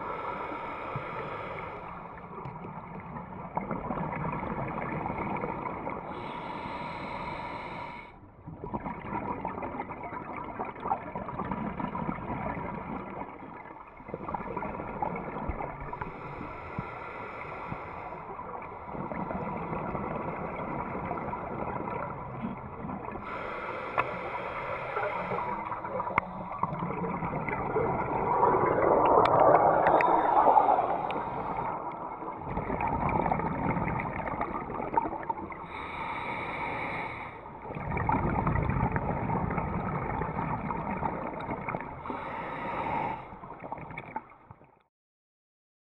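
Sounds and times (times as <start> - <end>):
diver inhaling through regulator: 0.0 - 2.2, 6.1 - 8.2, 15.9 - 19.4, 23.2 - 26.8, 27.7 - 34.2, 35.5 - 37.6, 42.0 - 43.4
gurgling exhaled bubbles: 0.0 - 7.3, 8.4 - 44.8.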